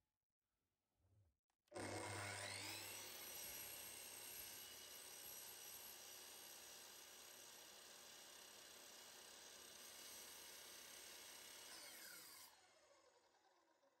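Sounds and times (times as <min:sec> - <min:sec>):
miter saw motor whine: 0:01.8 - 0:03.0, 0:11.7 - 0:13.0.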